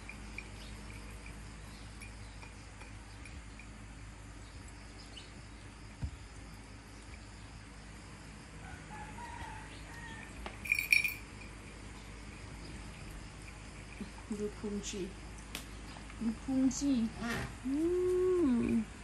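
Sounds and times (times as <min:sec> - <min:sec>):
jingle: 0:10.6 - 0:11.5.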